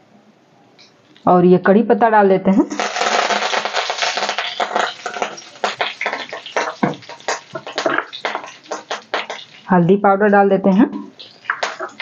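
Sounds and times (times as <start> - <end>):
spices sizzling in hot oil: 2.6 - 10.0, 11.1 - 12.0.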